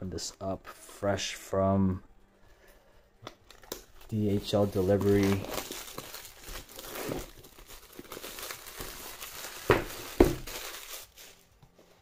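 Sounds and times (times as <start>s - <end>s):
plastic shrink-wrap crinkling: 3.4s - 12.0s
box knocking on table: 9.7s - 10.4s.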